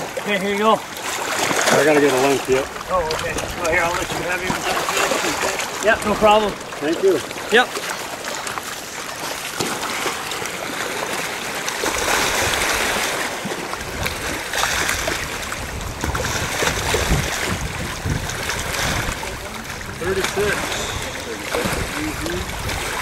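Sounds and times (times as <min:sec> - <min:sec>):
water splashing and sloshing: 0:00.0 - 0:23.0
wind rumbling on microphone: 0:13.8 - 0:23.0.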